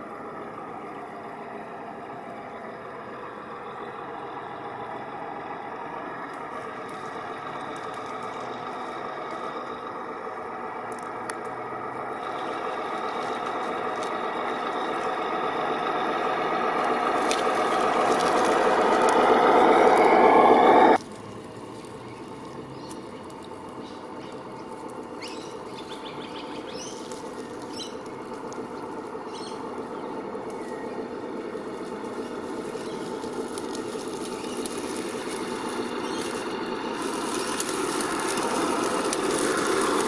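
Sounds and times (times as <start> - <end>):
electric motor whining: 6.3 - 21.0, 23.8 - 40.0.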